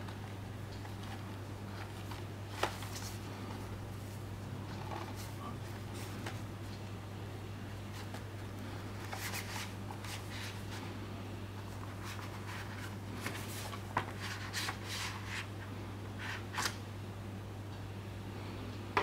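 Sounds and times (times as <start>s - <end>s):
steady low hum: 0.0s - 19.0s
plastic rustling and scraping: 0.8s - 6.4s, 9.0s - 10.9s, 11.7s - 15.5s.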